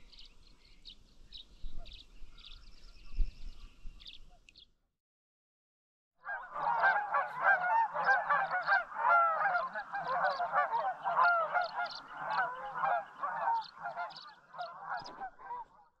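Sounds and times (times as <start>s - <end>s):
geese honking: 6.3s - 15.8s.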